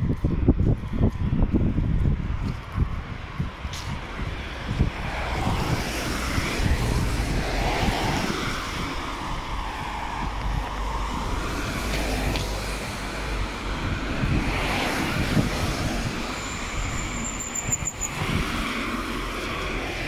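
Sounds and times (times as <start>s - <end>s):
wind buffeting microphone: 0.0s - 20.0s
tyres hissing on wet road: 4.0s - 20.0s.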